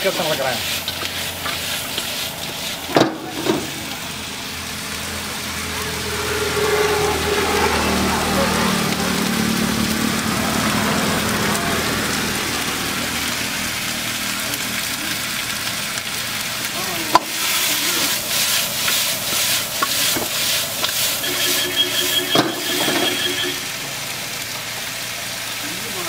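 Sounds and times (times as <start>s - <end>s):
food sizzling in a wok: 0.0s - 26.0s
metal ladle scraping a pan: 0.6s - 3.9s, 17.2s - 23.8s.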